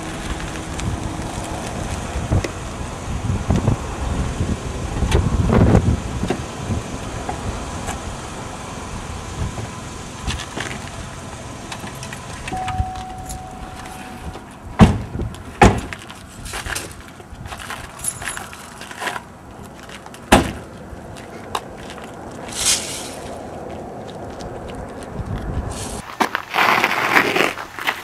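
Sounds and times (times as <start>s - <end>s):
electronic tone: 12.5s - 14.4s
door thumps: 14.8s - 16.0s.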